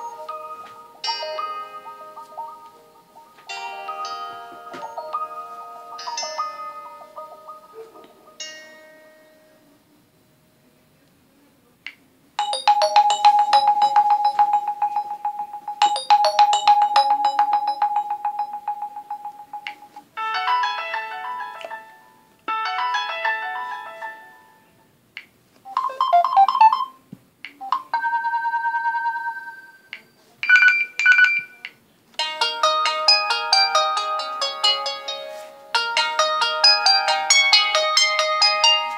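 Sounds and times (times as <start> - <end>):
electronic ringtone melodies: 0.0 - 9.3, 12.4 - 24.6, 25.7 - 27.0, 27.6 - 31.6, 32.2 - 38.9.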